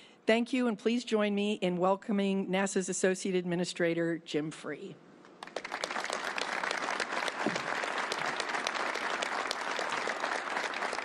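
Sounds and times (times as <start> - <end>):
audience applauding: 5.4 - 11.0.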